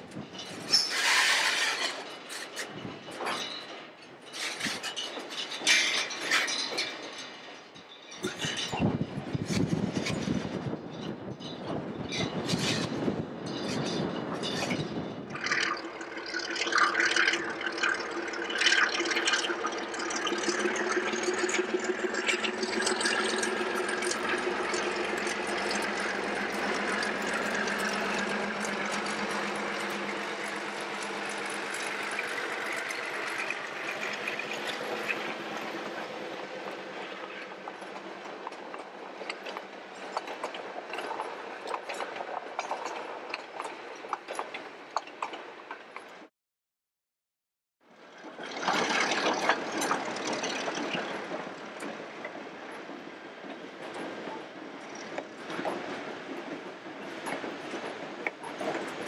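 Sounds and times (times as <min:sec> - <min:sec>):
diesel locomotive engine running: 0:15.4 - 0:39.9.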